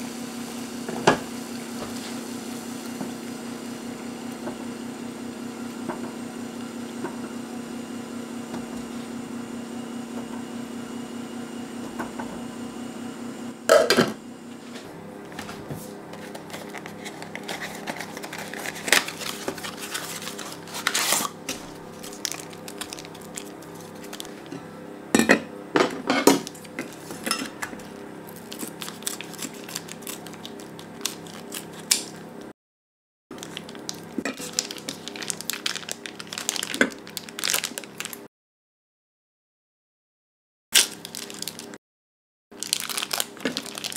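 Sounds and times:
scissors snipping plastic: 28.4s - 32.2s.

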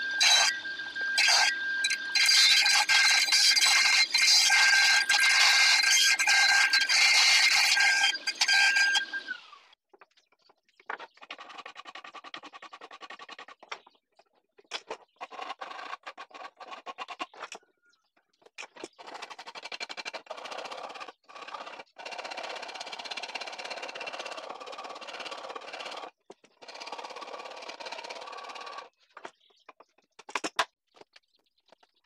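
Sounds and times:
hand file rasping on wood: 1.2s - 9.1s.

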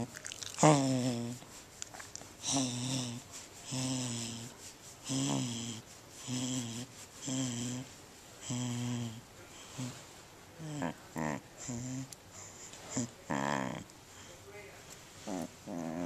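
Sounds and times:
dog grumbling groans: 0.0s - 1.4s, 2.4s - 4.5s, 5.1s - 10.0s, 10.6s - 12.2s, 12.9s - 13.9s, 15.2s - 16.0s.

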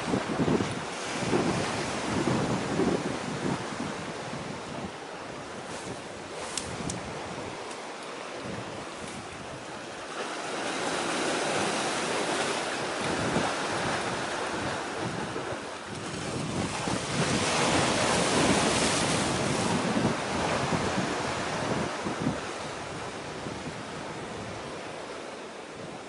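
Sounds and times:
sea waves washing in: 0.0s - 26.0s
wind buffeting microphone: 0.0s - 26.0s.

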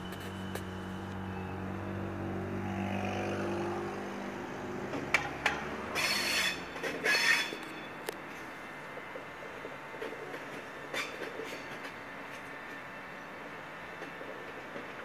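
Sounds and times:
hissing wheel and rail noise: 0.0s - 2.1s, 4.4s - 15.0s
electric train hum: 0.0s - 15.0s
train wheels clacking: 4.9s - 12.8s.

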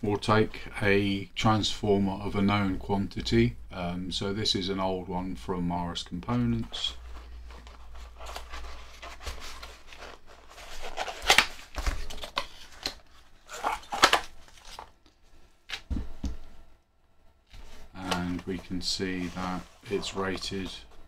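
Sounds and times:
cardboard rustling and crinkling: 6.2s - 15.1s, 17.5s - 21.0s
sharp cardboard crackles: 7.4s - 14.9s.

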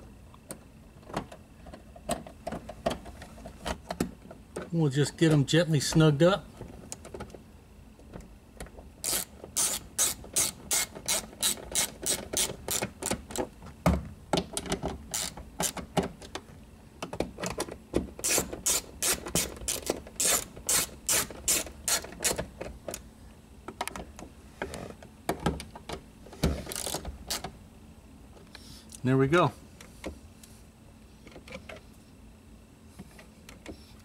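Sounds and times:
socket ratchet clicking: 9.0s - 13.2s, 15.1s - 15.8s, 18.2s - 22.4s.

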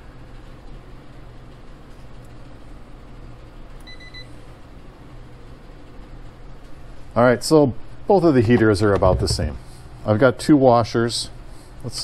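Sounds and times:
low room hum: 0.0s - 12.0s
short electronic beep: 3.9s - 4.3s.

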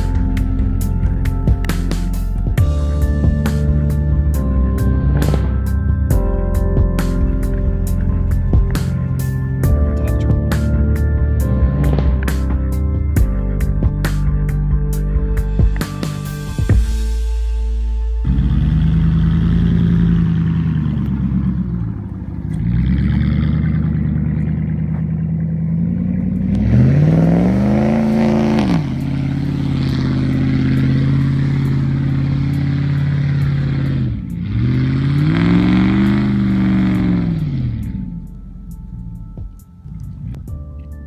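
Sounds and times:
truck engine revving hard: 2.9s - 6.3s, 18.2s - 38.4s.

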